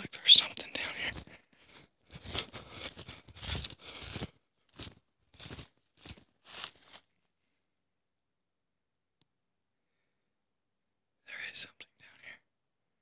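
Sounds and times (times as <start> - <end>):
footsteps crunching dry leaves: 0.9 - 7.1.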